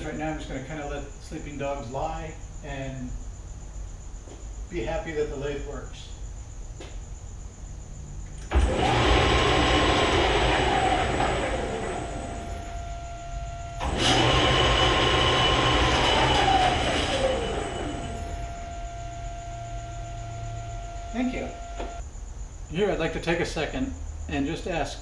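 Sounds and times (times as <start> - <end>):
lathe gear and motor whine: 8.4 - 22.0.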